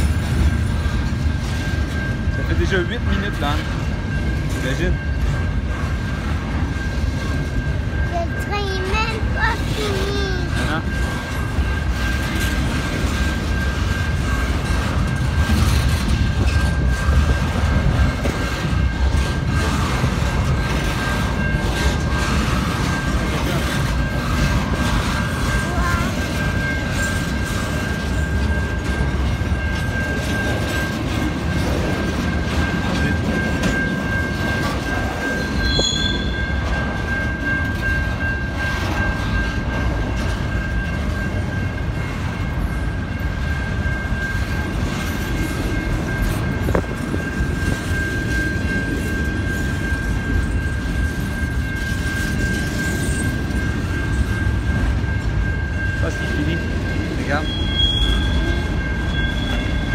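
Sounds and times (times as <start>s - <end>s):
freight train wheels rumbling: 0.0s - 59.9s
high-pitched wheel squeal: 35.4s - 36.6s, 57.4s - 59.9s.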